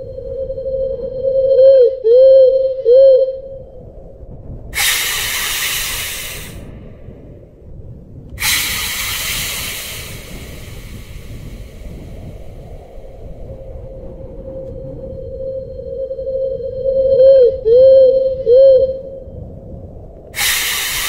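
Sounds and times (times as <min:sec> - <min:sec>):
loud wavering tone: 0:00.0 - 0:03.8, 0:04.8 - 0:06.7, 0:13.0 - 0:19.4
long hisses: 0:04.8 - 0:06.8, 0:08.4 - 0:13.4, 0:20.4 - 0:21.0.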